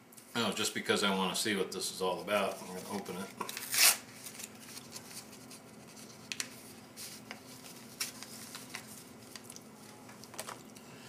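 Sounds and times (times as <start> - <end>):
packet rustling and crinkling: 2.6 - 10.8.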